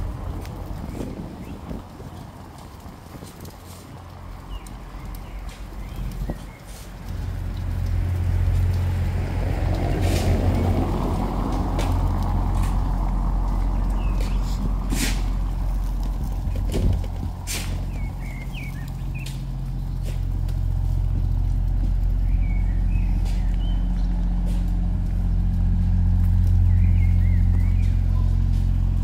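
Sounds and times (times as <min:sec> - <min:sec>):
vehicle engine humming: 0:00.0 - 0:29.0
birds chirping: 0:03.8 - 0:07.9, 0:13.5 - 0:29.0.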